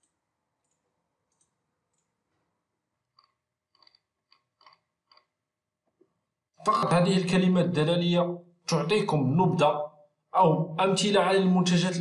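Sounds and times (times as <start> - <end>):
computer mouse clicks: 0.0 - 2.2, 3.1 - 5.4.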